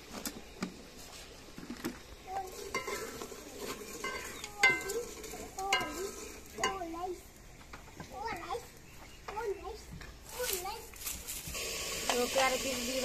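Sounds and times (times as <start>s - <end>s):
light sizzle: 0.0s - 13.0s
metal ladle scraping pot: 2.3s - 7.0s.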